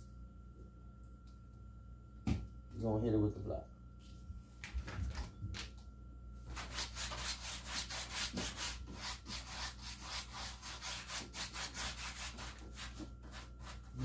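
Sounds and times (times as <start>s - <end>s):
paintbrush scrubbing on canvas: 6.5s - 14.0s.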